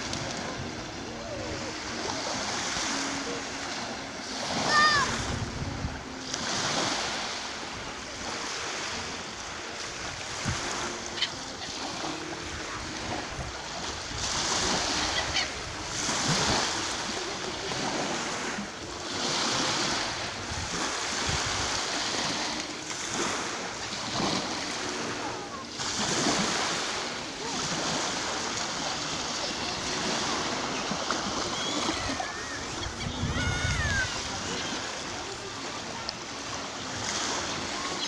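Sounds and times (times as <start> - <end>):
waves breaking on shore: 0.0 - 38.0
gull cries: 11.1 - 11.8, 31.3 - 34.9.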